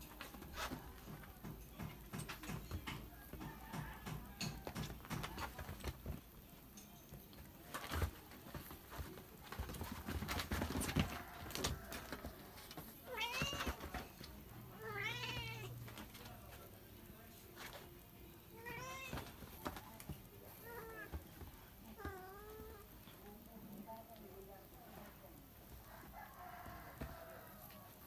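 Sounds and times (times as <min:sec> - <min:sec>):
kittens playing on a bed: 0:00.0 - 0:28.0
cat meowing: 0:13.1 - 0:13.8, 0:14.8 - 0:15.7, 0:18.6 - 0:19.2.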